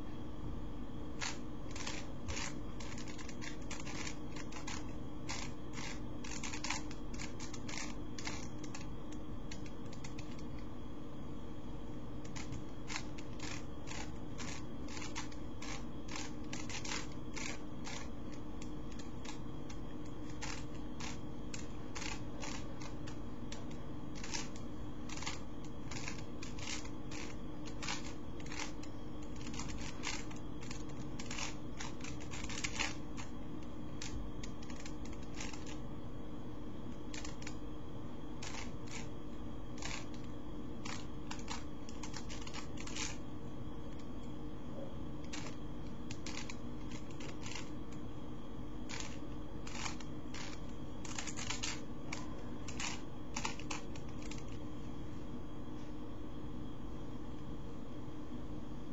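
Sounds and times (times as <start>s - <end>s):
steady low hum: 0.0s - 58.9s
puzzle cube plastic clicking: 1.2s - 8.9s, 12.2s - 33.3s, 34.0s - 35.8s, 37.0s - 37.6s, 38.4s - 39.1s, 39.8s - 43.2s, 45.2s - 47.7s, 48.9s - 54.5s.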